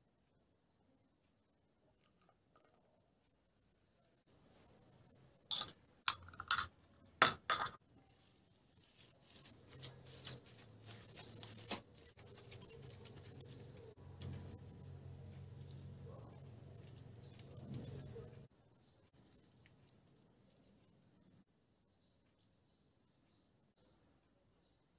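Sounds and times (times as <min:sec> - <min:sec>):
metal spoon clinking: 0:05.5 - 0:07.8
hand kneading raw meat: 0:08.0 - 0:21.3.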